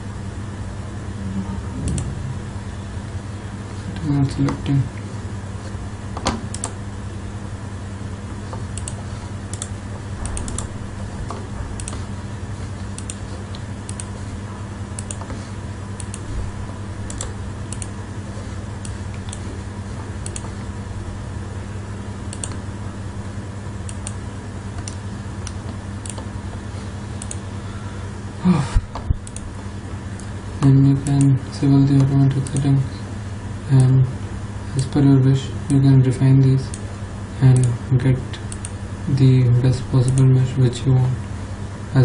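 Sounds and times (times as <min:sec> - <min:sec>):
low electrical hum: 0:00.0 - 0:42.0
computer mouse clicks: 0:01.8 - 0:02.1, 0:06.2 - 0:06.8, 0:08.5 - 0:10.7, 0:11.3 - 0:12.1, 0:12.9 - 0:14.2, 0:15.0 - 0:15.4, 0:16.0 - 0:16.3, 0:17.1 - 0:18.0, 0:20.2 - 0:20.5, 0:22.3 - 0:22.6, 0:23.8 - 0:24.2, 0:24.8 - 0:26.3, 0:27.2 - 0:27.4, 0:28.9 - 0:29.5, 0:32.0 - 0:32.7, 0:38.5 - 0:38.8, 0:40.0 - 0:40.3.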